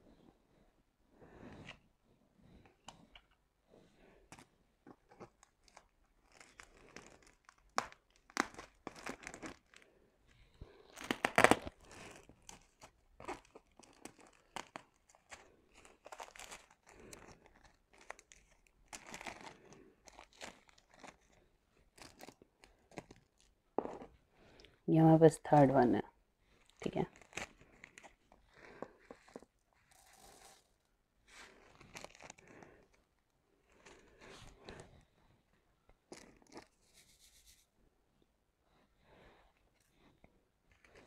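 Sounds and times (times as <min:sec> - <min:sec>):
plastic packaging crinkling: 0:04.3 - 0:09.9, 0:10.8 - 0:24.1, 0:26.6 - 0:34.8, 0:36.1 - 0:37.1.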